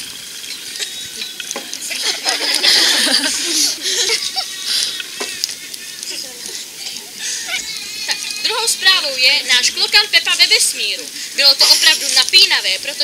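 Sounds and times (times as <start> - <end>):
people laughing: 0.8 - 8.8.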